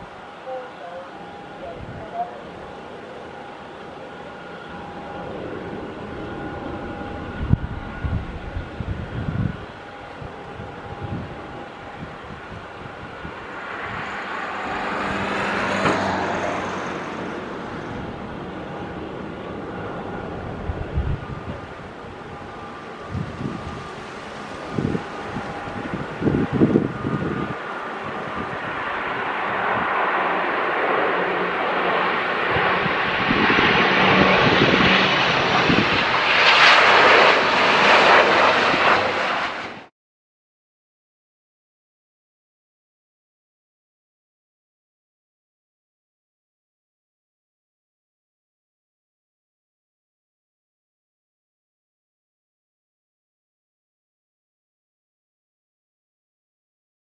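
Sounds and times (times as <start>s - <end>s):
turboprop aircraft droning: 0.0s - 39.9s.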